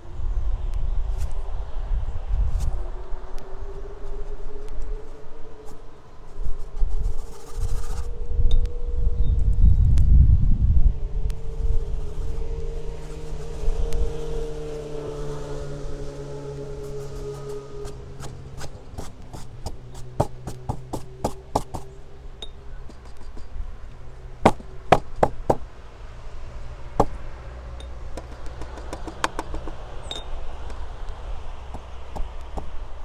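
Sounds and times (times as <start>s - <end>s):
steady low rumble: 0.0s - 14.7s
sharp taps and knocks: 18.2s - 21.9s, 22.9s - 23.6s, 24.4s - 25.7s, 27.0s - 27.2s, 28.1s - 30.8s, 31.7s - 32.7s.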